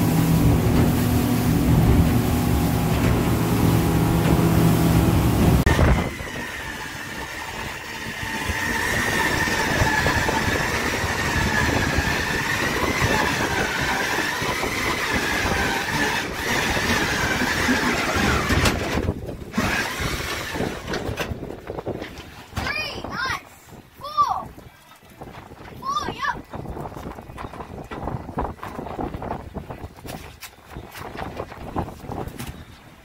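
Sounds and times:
water and wind rushing: 0.0 - 33.0.

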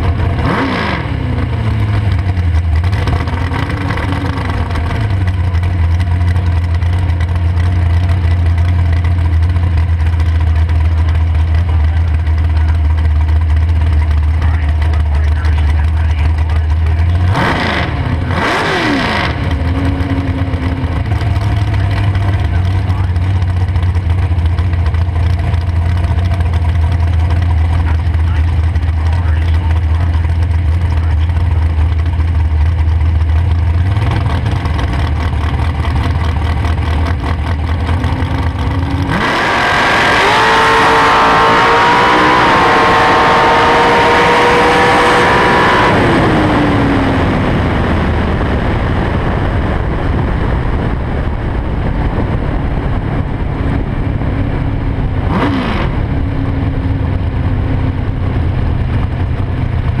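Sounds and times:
dragster engine revving: 0.0 - 60.0
wind noise: 39.0 - 60.0.

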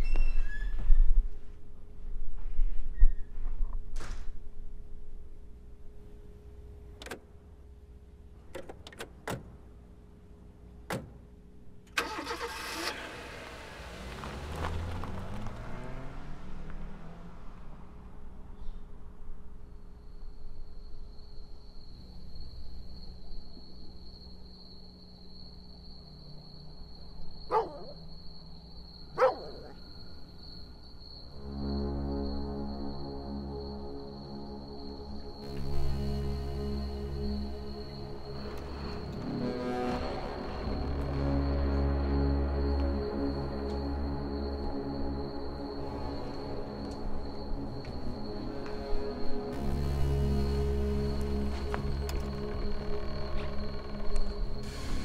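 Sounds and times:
car engine cranking and running: 11.9 - 16.8
faint steady hum: 17.5 - 55.0
dog barking: 27.5 - 28.0, 29.2 - 29.8
high-pitched whine: 31.2 - 55.0
soft music: 31.3 - 55.0.

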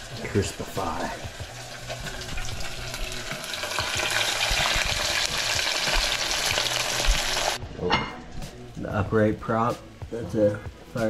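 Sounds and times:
fish sizzling in hot oil: 0.0 - 7.6.

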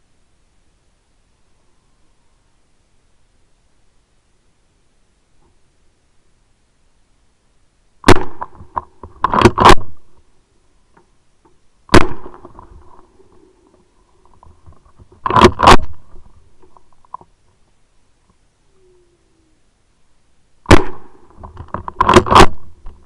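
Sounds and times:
shotgun shots with echo: 8.0 - 8.6, 11.9 - 12.6, 20.7 - 21.3.

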